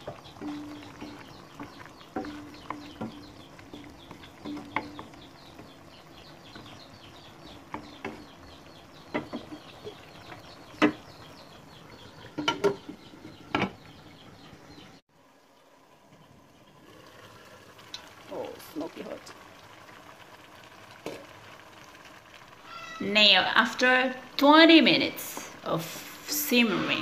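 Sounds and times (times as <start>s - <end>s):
wooden spatula knocking in wok: 0.0s - 11.3s.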